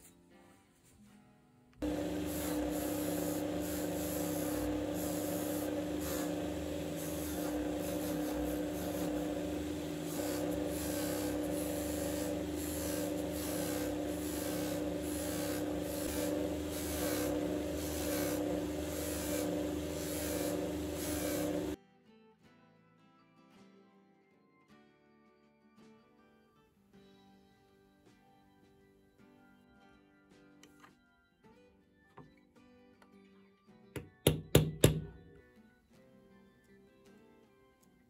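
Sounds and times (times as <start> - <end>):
buffing wheel motor hum: 1.8 - 21.8
pen part rubbing on buffing wheel: 1.9 - 21.8.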